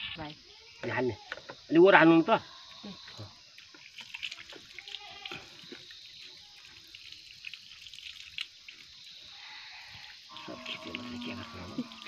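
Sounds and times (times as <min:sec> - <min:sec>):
water splashing and dripping: 0:03.2 - 0:12.0.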